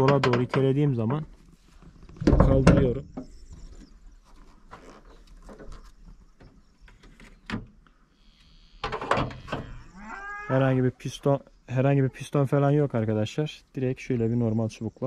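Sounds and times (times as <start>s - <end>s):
metal clicks and knocks: 0.0s - 1.2s, 8.8s - 9.6s.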